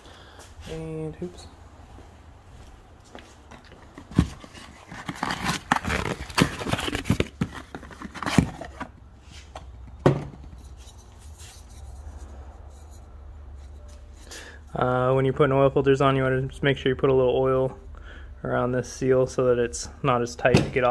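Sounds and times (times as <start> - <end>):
objects clattering and scraping: 3.4 - 14.6.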